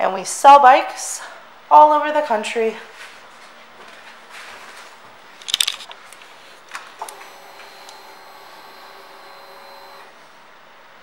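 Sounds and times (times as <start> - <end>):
fuel pump electrical whine: 7.0 - 10.4.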